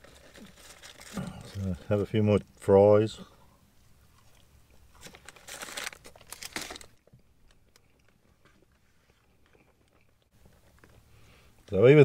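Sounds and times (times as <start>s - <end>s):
paper packaging crinkling: 0.0s - 1.8s, 5.0s - 7.1s.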